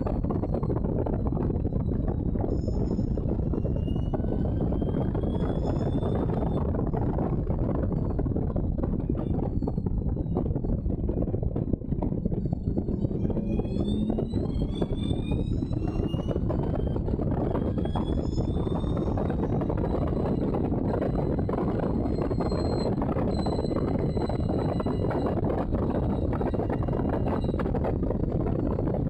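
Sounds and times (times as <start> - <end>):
wind noise on microphone: 0.0 - 29.0
racing car engine: 11.8 - 28.3.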